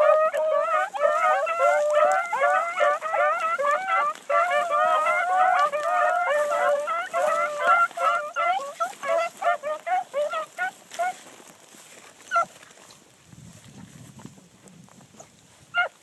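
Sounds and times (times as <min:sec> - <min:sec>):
hounds baying: 0:00.0 - 0:11.5, 0:12.2 - 0:12.6, 0:15.7 - 0:16.0.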